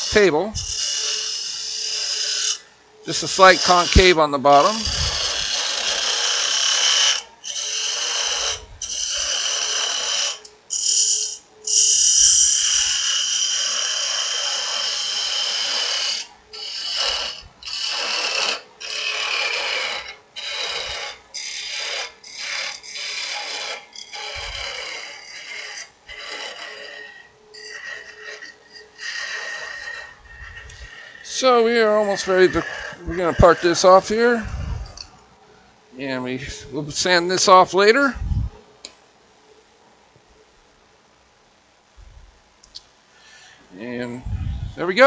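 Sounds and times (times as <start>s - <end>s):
parting tool scraping wood on lathe: 0.0s - 35.1s.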